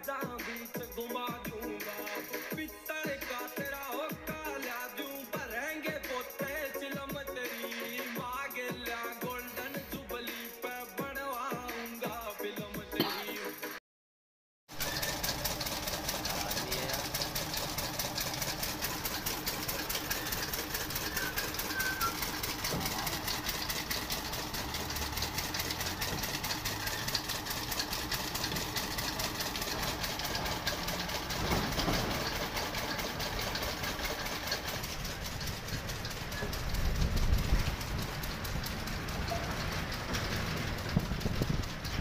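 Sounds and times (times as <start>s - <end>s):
engine running with rapid clatter: 14.7s - 42.0s.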